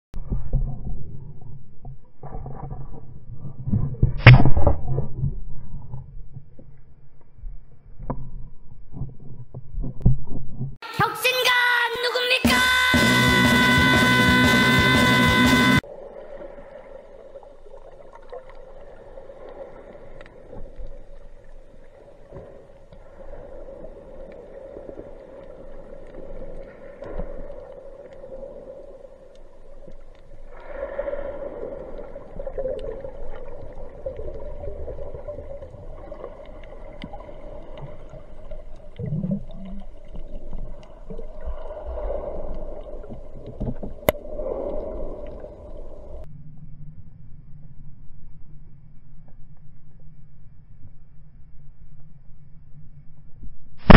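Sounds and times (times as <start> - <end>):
water swirling: 15.8 - 46.3
muffled underwater drone: 27.4 - 53.9.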